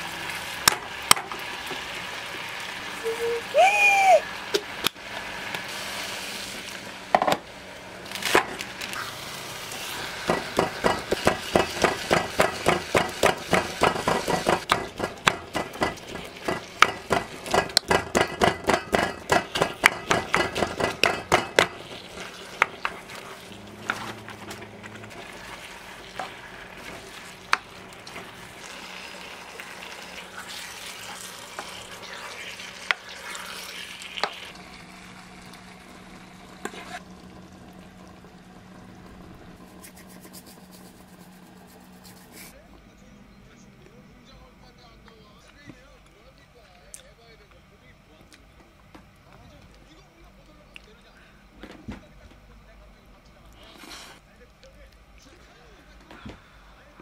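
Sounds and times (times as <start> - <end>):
food sizzling: 0.0 - 42.6
wooden spoon stirring and scraping wok: 8.6 - 34.6.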